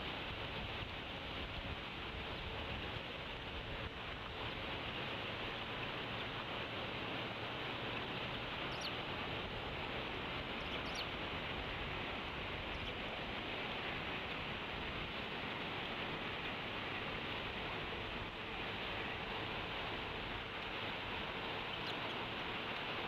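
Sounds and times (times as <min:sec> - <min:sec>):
background hiss: 0:00.0 - 0:23.0
eaglet peeping: 0:08.7 - 0:09.0, 0:10.6 - 0:11.1, 0:12.7 - 0:13.0, 0:21.7 - 0:22.2.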